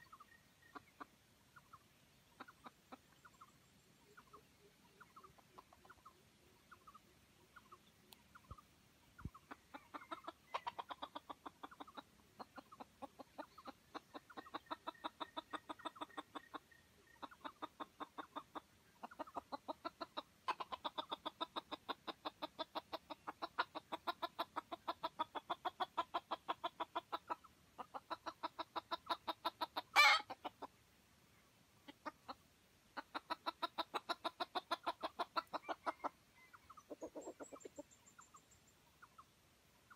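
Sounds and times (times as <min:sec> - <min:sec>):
rooster clucking rapidly: 0:09.2 - 0:30.8, 0:31.8 - 0:32.4, 0:33.0 - 0:37.9.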